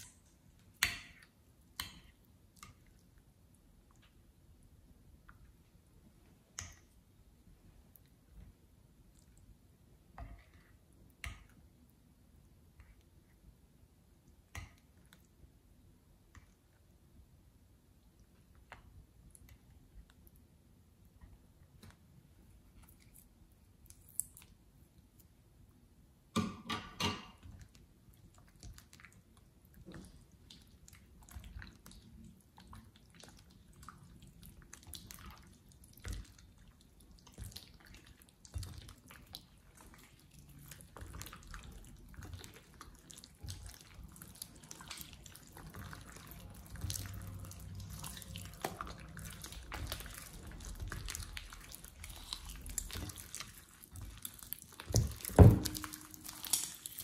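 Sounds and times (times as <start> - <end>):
slime squelching by hand: 27.4 - 57.0.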